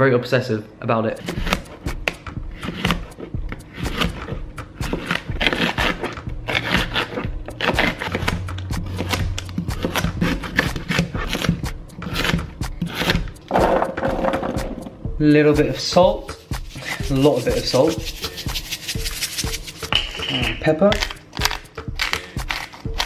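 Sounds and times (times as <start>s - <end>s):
background music: 0.0s - 23.0s
knife chopping on cutting board: 1.2s - 13.8s.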